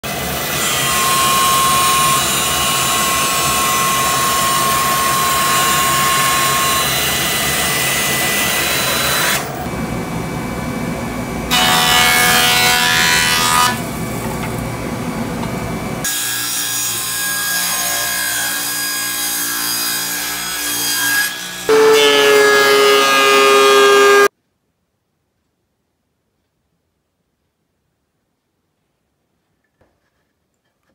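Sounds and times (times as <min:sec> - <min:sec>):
bandsaw cutting wood: 0:00.1 - 0:09.7, 0:11.5 - 0:14.5, 0:16.0 - 0:24.3
jointer planing wood: 0:00.1 - 0:09.8, 0:11.5 - 0:24.3
thickness planer humming: 0:00.1 - 0:24.3.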